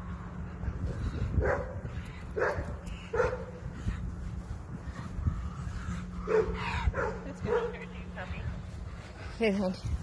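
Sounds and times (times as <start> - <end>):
dog barking: 1.4 - 1.8, 2.4 - 3.6, 6.3 - 7.8.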